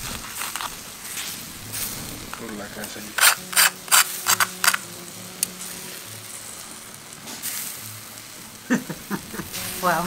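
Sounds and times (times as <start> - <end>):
knife crunching crackling skin: 0.0 - 0.8, 3.2 - 4.9.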